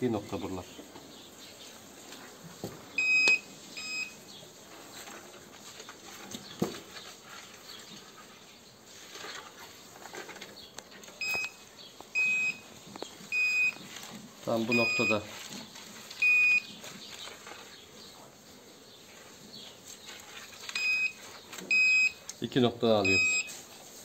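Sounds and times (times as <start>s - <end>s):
metal detector beeps: 3.0s - 4.2s, 11.2s - 11.6s, 12.2s - 12.7s, 13.3s - 13.8s, 14.7s - 15.3s, 16.2s - 16.7s, 20.8s - 22.2s, 23.0s - 23.5s.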